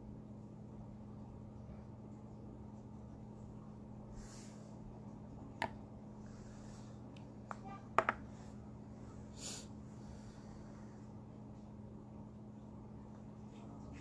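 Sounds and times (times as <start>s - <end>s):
steady low hum: 0.0s - 14.0s
person sniffing: 9.3s - 10.7s.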